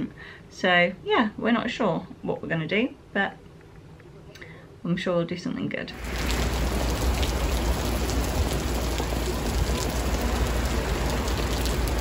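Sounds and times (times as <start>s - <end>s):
rain on wet paving stones: 6.0s - 12.0s.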